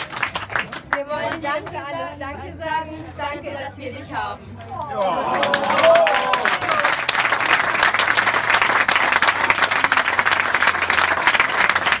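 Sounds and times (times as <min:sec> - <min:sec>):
crowd applauding: 0:00.0 - 0:01.0, 0:04.9 - 0:12.0.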